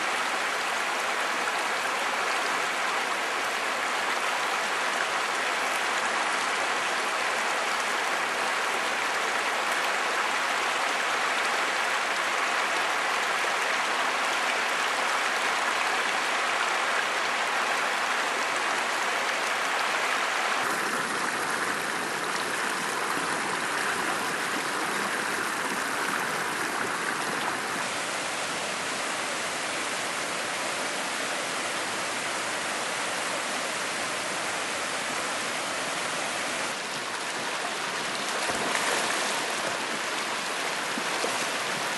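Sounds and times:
river water rushing over rock: 18.5 - 41.9.

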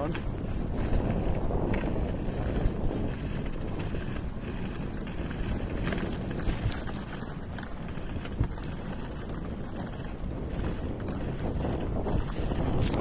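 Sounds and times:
sled dogs running: 0.0 - 13.0
sled sliding on snow: 0.0 - 13.0
wind on microphone: 0.0 - 13.0.

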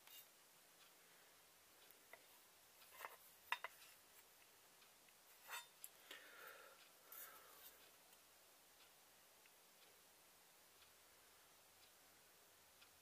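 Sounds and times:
faint irregular clicks: 0.0 - 13.0
light scrapes of knife parts: 5.4 - 5.7.

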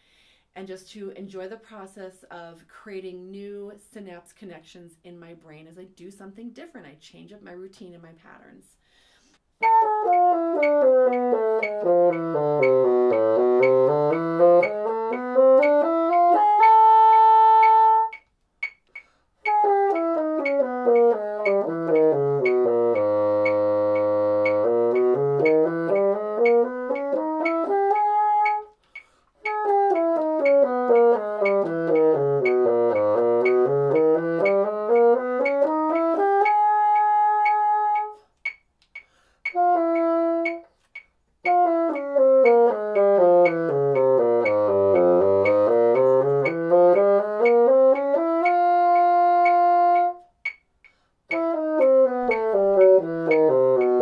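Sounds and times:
bassoon playing scales: 9.6 - 18.8, 19.4 - 38.3, 39.5 - 40.8, 41.4 - 50.3, 51.3 - 54.0.

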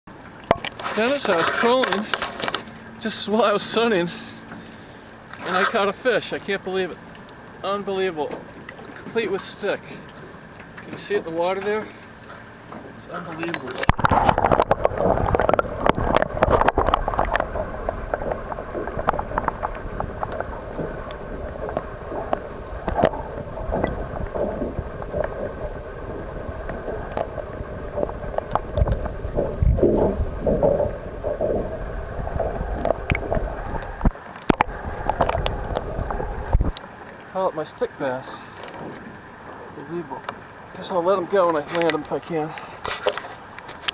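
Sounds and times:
muffled underwater sloshing: 0.1 - 43.9
splashes and knocks: 0.3 - 3.0, 8.2 - 36.9.

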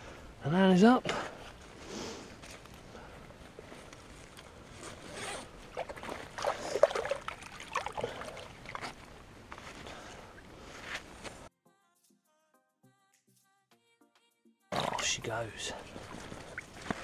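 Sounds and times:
zip being pulled: 4.8 - 5.5.

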